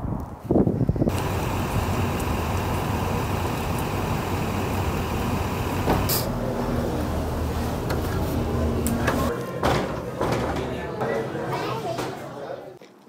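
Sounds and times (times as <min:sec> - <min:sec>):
street traffic engine rumble: 0:01.1 - 0:09.3.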